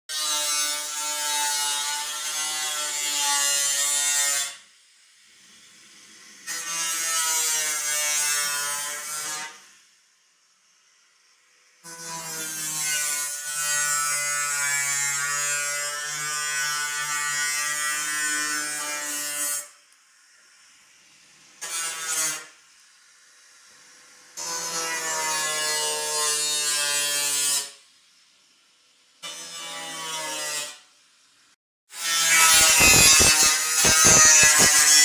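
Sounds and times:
angle grinder cutting metal: 0:00.1 - 0:04.7, 0:05.4 - 0:09.8, 0:11.6 - 0:19.8, 0:21.6 - 0:22.6, 0:23.9 - 0:27.8, 0:29.2 - 0:30.8, 0:31.9 - 0:35.0.

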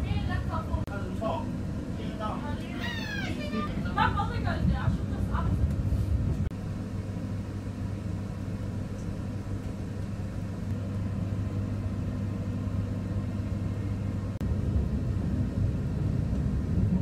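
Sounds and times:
train rumble inside carriage: 0:00.0 - 0:17.0.

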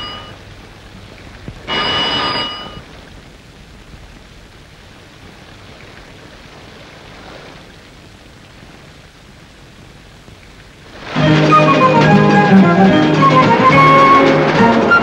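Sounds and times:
electric bell ringing: 0:00.0 - 0:00.4, 0:01.7 - 0:02.8
heavy rain hissing: 0:00.0 - 0:15.0.

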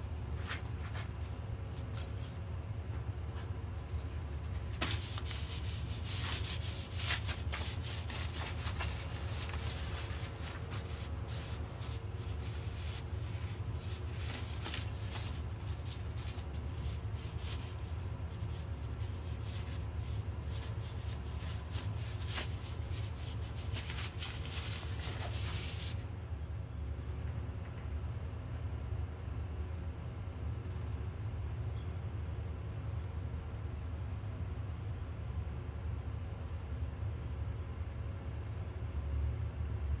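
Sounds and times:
steady low hum: 0:00.0 - 0:40.0
cloth rag rubbing wood: 0:04.4 - 0:26.0.

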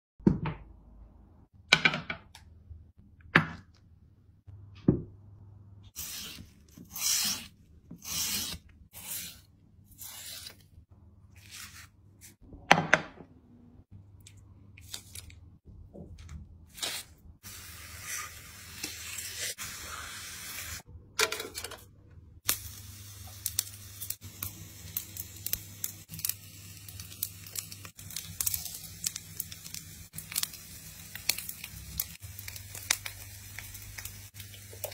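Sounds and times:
meat sizzling on a grill: 0:22.5 - 0:34.9.

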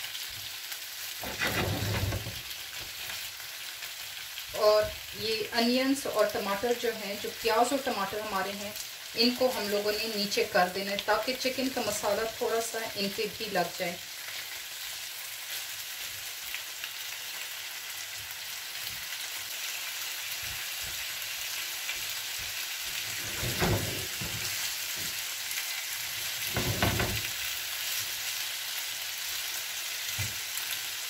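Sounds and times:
food sizzling in a frying pan: 0:00.0 - 0:31.0
tongs scraping against a pan: 0:01.2 - 0:03.2, 0:23.0 - 0:25.2.

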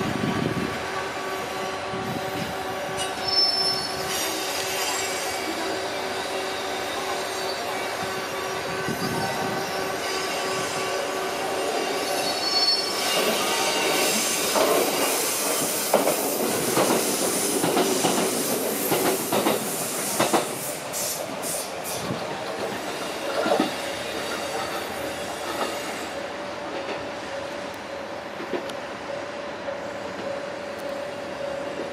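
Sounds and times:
steel wheels squealing: 0:03.0 - 0:22.2, 0:22.8 - 0:26.2
train clattering over rail joints: 0:13.1 - 0:26.0.

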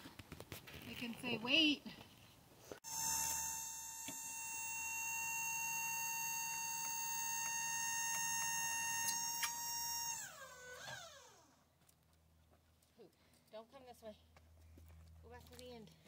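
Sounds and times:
machine high-pitched whine: 0:02.9 - 0:11.5.

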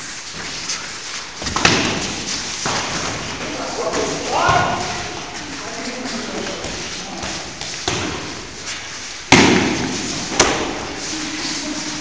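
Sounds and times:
sparring blows smacking: 0:01.4 - 0:03.4, 0:07.8 - 0:08.4, 0:09.3 - 0:10.8.

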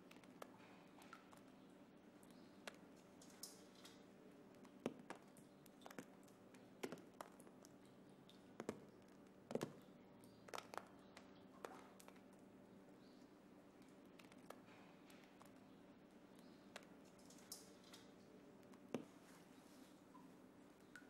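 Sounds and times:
faint steady hum: 0:00.0 - 0:21.0
plaster flakes tapping: 0:02.6 - 0:09.8, 0:10.4 - 0:12.3, 0:16.4 - 0:19.4.

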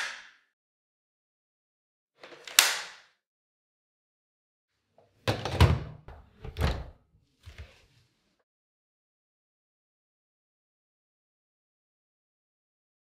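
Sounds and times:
plastic click of vacuum wand: 0:02.2 - 0:03.0.

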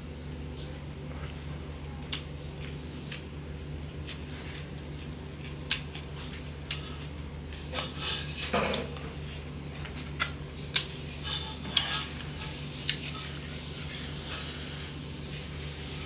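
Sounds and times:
man chewing with lip smacks: 0:02.0 - 0:07.9, 0:09.4 - 0:11.0.

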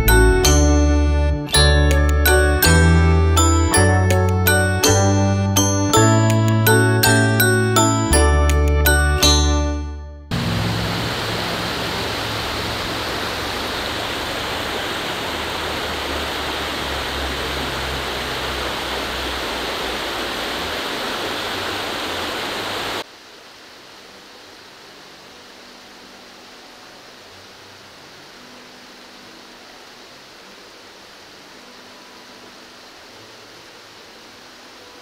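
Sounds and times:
creek water rushing over rocks: 0:10.3 - 0:35.0.

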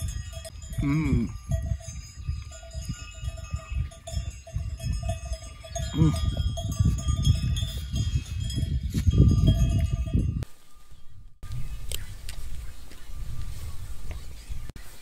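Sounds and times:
bells clinking and ringing: 0:00.0 - 0:10.5.

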